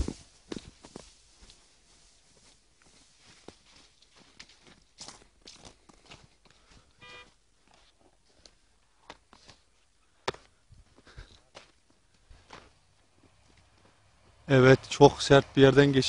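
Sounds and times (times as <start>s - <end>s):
footsteps on snow: 0.0s - 14.4s
short beep: 7.0s - 7.4s.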